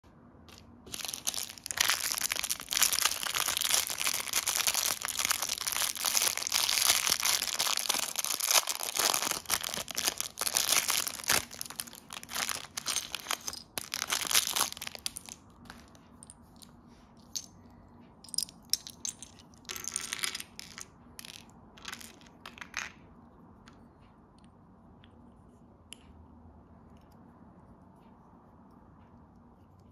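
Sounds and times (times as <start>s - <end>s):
plastic bag crinkling: 0.8s - 15.8s.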